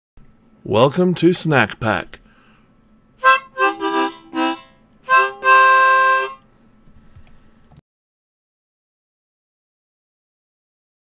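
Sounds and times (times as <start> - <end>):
reedy wind instrument phrase: 3.2 - 6.4.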